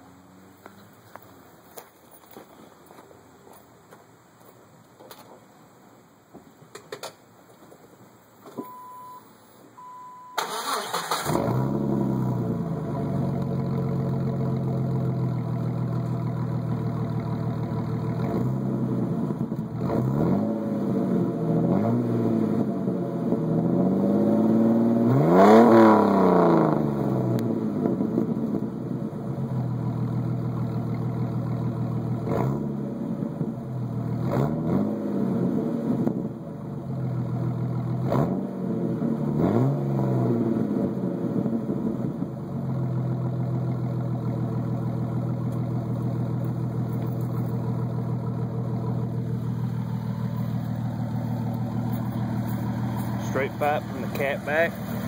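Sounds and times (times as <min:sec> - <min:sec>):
high electronic beep: 0:08.6 - 0:10.4
car engine starting and revving: 0:10.3 - 0:55.0.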